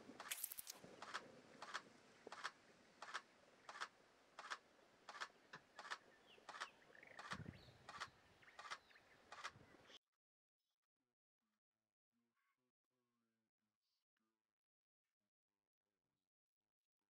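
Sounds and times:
faint sharp clicks: 0.1 - 10.0.

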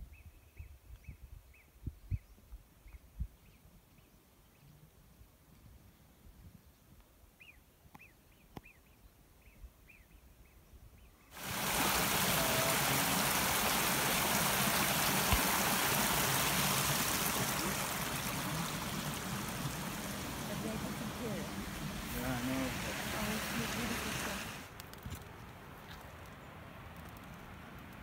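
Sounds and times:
stream splashing over rocks: 11.4 - 24.8.

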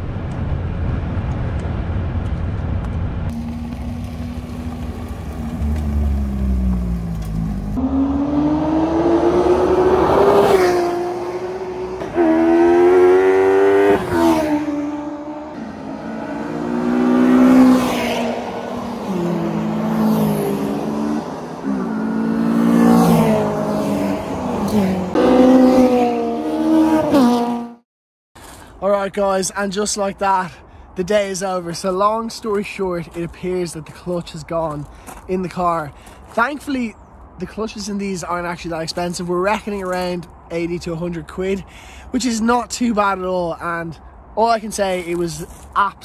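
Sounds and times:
wind and road noise: 0.0 - 27.8, 28.4 - 46.0
race car engines revving: 1.5 - 27.8.

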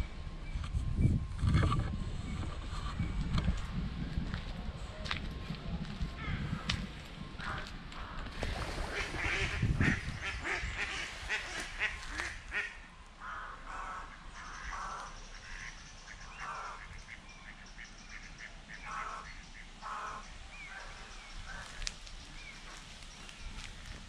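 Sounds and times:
ducks quacking: 7.4 - 21.9
small birds chirping: 14.3 - 24.0.

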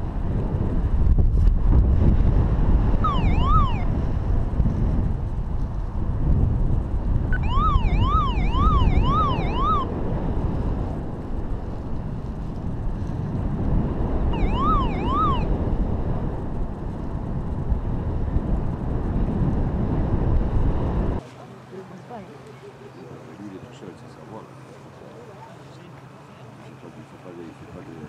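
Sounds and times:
wind rushing over microphone: 0.0 - 21.2
siren-like electronic warble: 3.0 - 4.0, 7.3 - 10.0, 14.3 - 15.5.

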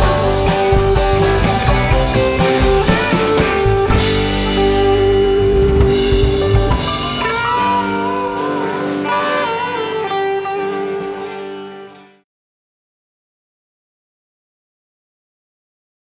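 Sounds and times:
rock band playing: 0.0 - 12.2
wavering lead guitar line: 0.0 - 12.2.

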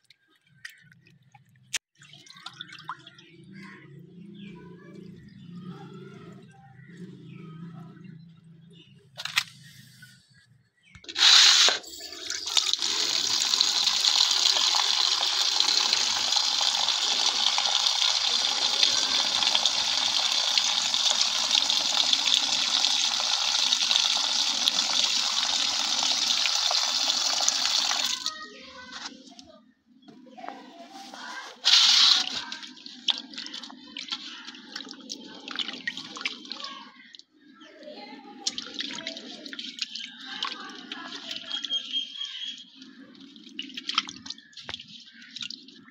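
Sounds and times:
water pouring into a steel bowl: 11.2 - 28.4.

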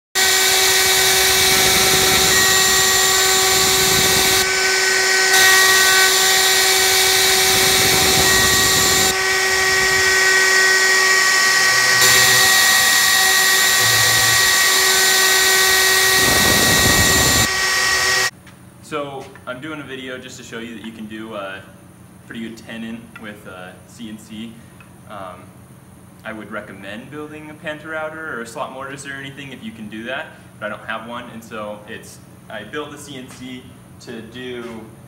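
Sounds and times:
router bit cutting wood: 0.2 - 18.3
router motor whine: 0.2 - 18.3.

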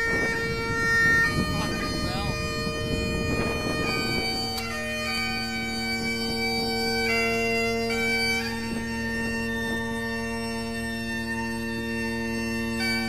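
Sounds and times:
bagpipe music: 0.0 - 13.0.

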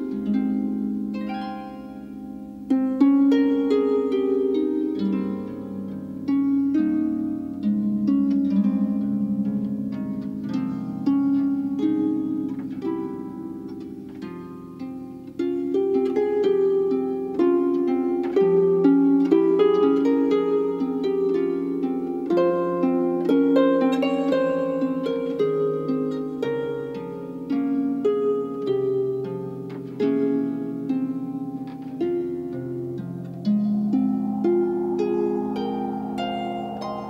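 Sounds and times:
plucked instrumental music: 0.0 - 37.0.

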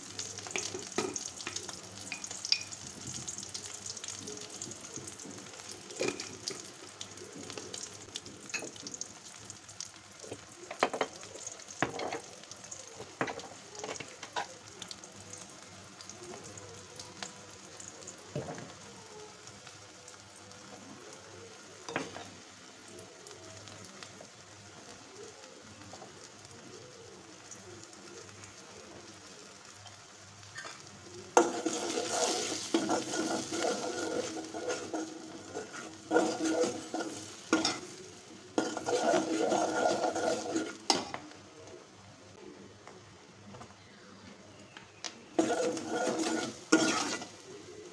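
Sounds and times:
oil sizzling in a pot: 0.0 - 43.2, 44.6 - 47.9
metal spoon stirring: 0.4 - 2.8, 31.4 - 38.0, 38.6 - 41.1, 45.4 - 47.4.

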